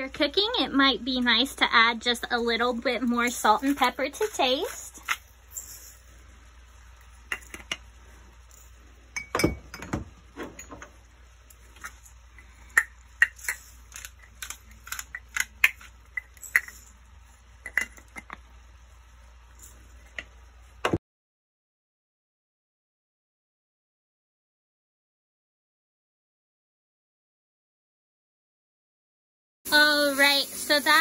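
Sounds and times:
chicken sizzling in a frying pan: 0:29.7 - 0:31.0.

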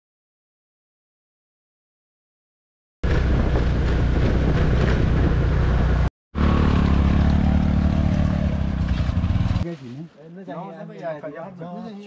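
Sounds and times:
wind noise on microphone: 0:03.0 - 0:06.1
motorcycle engine running: 0:03.0 - 0:09.6.

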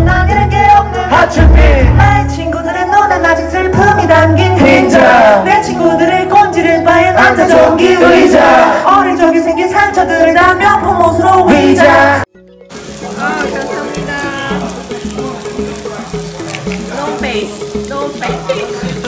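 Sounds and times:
person singing into microphone: 0:00.0 - 0:12.2.

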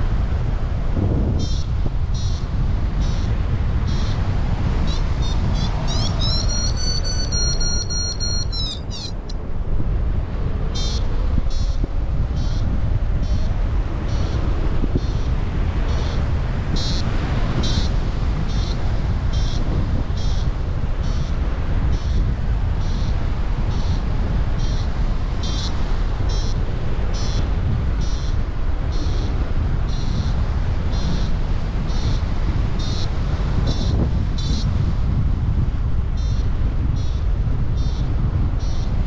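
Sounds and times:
wind noise on microphone: 0:00.0 - 0:39.0
variometer beeping: 0:04.8 - 0:09.4.

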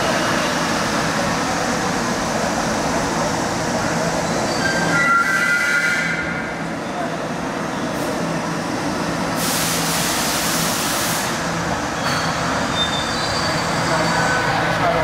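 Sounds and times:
train wheels rumbling on rails: 0:00.0 - 0:15.0
brief high squeal: 0:04.5 - 0:06.4, 0:12.0 - 0:14.4
train hiss: 0:09.2 - 0:11.6.

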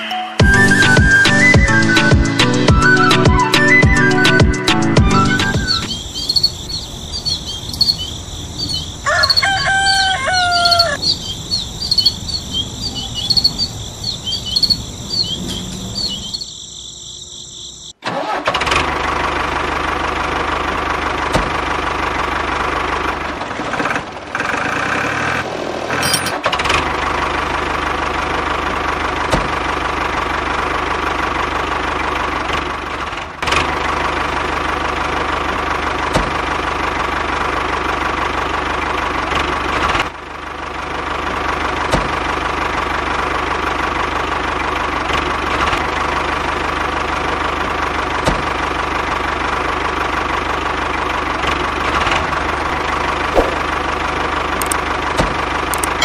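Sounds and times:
tractor engine running: 0:00.4 - 0:56.0
bird call: 0:05.1 - 0:17.9
insects chirping: 0:05.6 - 0:18.0.

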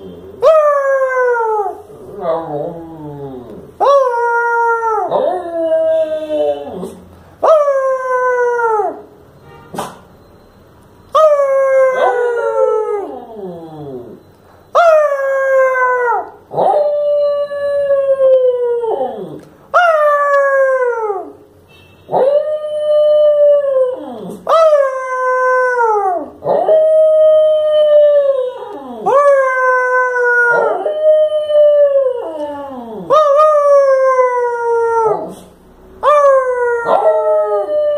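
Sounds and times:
dog howling: 0:22.2 - 0:35.4, 0:36.0 - 0:37.9.

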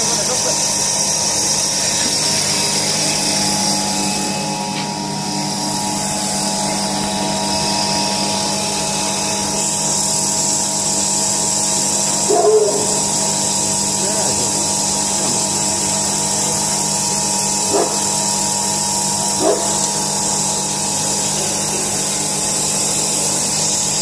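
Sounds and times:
extruder motor drone with whine: 0:00.0 - 0:24.0.

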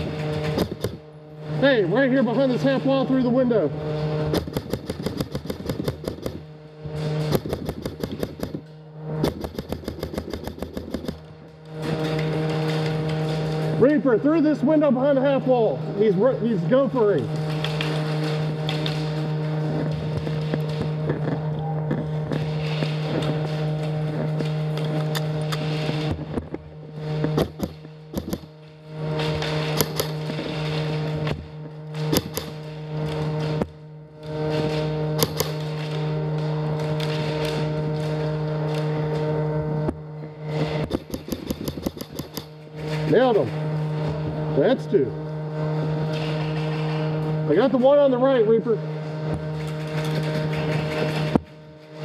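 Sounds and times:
airsoft rifles firing rapidly: 0:00.0 - 0:11.2, 0:27.2 - 0:33.6, 0:34.4 - 0:39.0, 0:40.5 - 0:43.7, 0:45.9 - 0:52.0
steady hum: 0:00.0 - 0:52.0.

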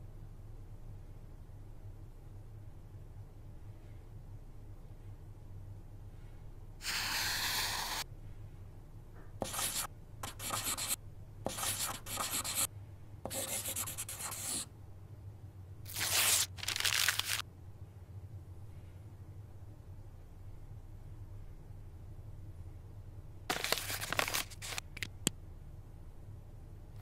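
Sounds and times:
pen scratching across paper: 0:06.8 - 0:08.0, 0:09.4 - 0:12.7, 0:13.3 - 0:14.6.

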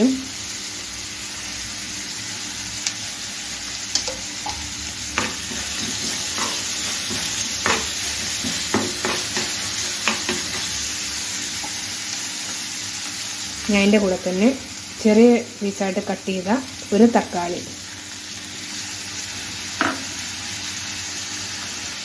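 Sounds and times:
onions sizzling in oil: 0:00.0 - 0:22.0
spoon scraping a pan: 0:04.0 - 0:10.9.

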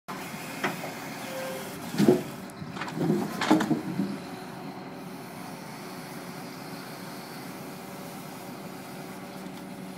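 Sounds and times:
engine humming: 0:00.1 - 0:09.9
logs knocking and clattering: 0:02.8 - 0:04.1.

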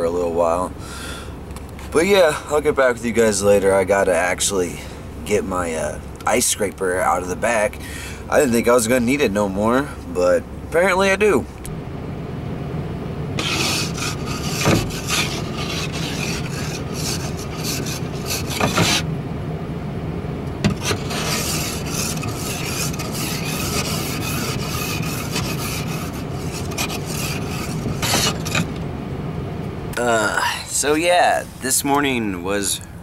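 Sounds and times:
ice scraper rasping on glass: 0:13.4 - 0:19.0, 0:20.7 - 0:28.8.

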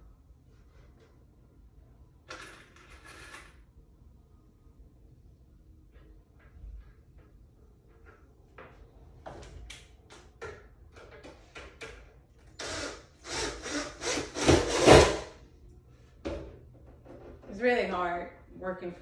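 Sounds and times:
cordless drill driving a screw: 0:12.6 - 0:15.2.

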